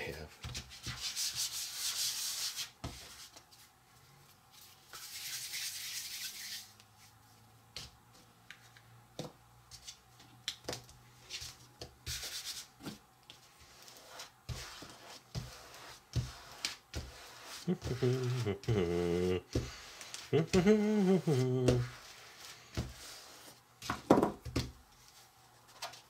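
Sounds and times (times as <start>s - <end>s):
rubbing on a work surface: 0.5s - 3.7s, 4.6s - 7.2s, 11.2s - 12.7s, 13.4s - 23.6s.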